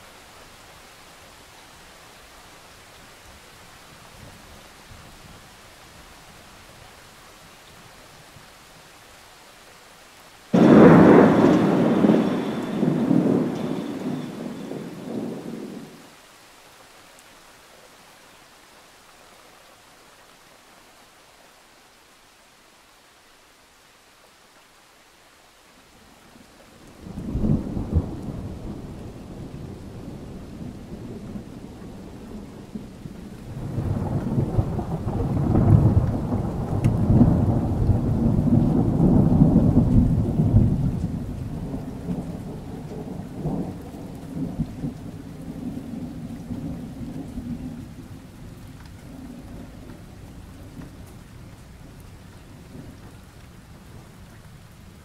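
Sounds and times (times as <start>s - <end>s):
rain falling: 0.0s - 55.0s
thunder clap: 10.5s - 16.0s, 33.6s - 43.6s
thunder rumbling: 10.5s - 16.0s, 27.0s - 51.2s.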